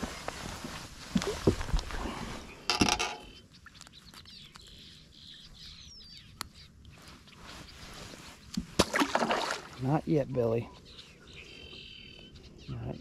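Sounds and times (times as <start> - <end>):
open water ambience: 0.0 - 13.0
faint bird chirp: 2.0 - 8.6, 9.6 - 13.0.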